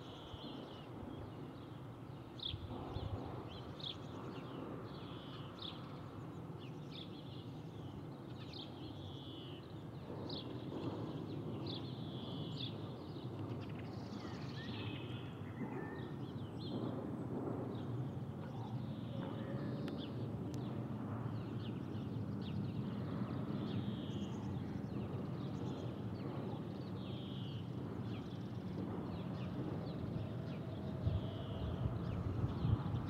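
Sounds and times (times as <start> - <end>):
distant airplane rumble: 16.6 - 33.0.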